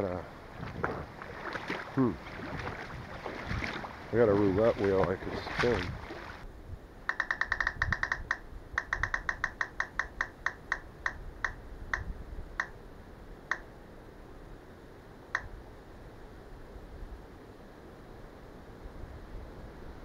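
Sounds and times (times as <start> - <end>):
electronic clicks slowing down: 7.1 - 12.8.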